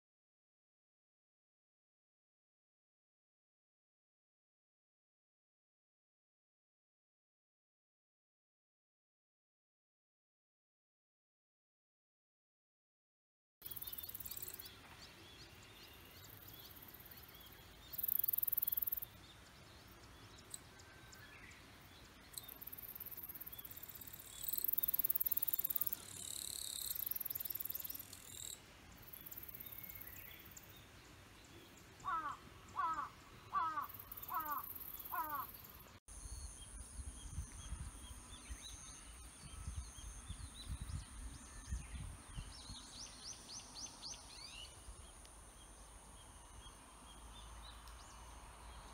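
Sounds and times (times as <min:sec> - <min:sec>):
crow cawing: 0:32.0 - 0:35.6
wind rumbling on microphone: 0:36.2 - 0:43.6.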